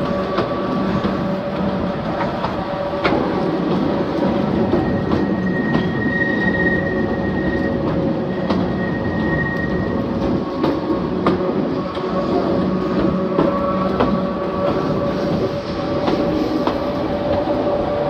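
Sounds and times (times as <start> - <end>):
electric locomotive running: 0.0 - 18.0
wheel squeal: 4.5 - 10.3.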